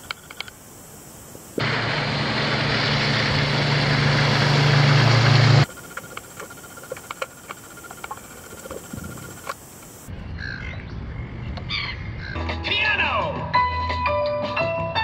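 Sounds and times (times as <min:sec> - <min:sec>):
faint steady tone and hiss: 0:00.0 - 0:01.6, 0:05.7 - 0:10.1
underwater clicks and crackles: 0:05.9 - 0:09.6.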